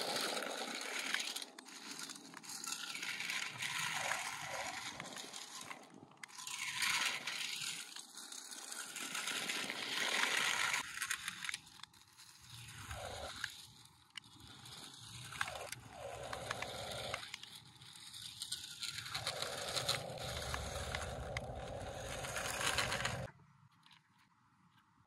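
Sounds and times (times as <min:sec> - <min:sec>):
tyres crunching on gravel: 0:19.2 - 0:23.3.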